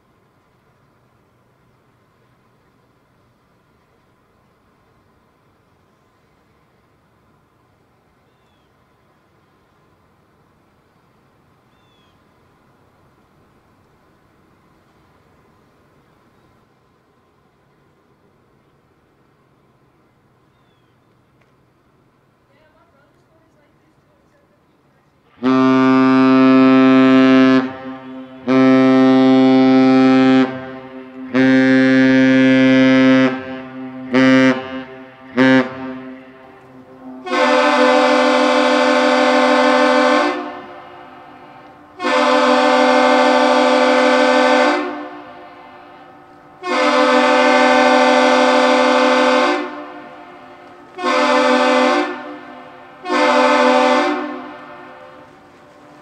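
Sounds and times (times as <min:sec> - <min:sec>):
deep ship's horn blasts: 0:25.3 - 0:56.0
higher harsher horn blasts: 0:25.3 - 0:56.0.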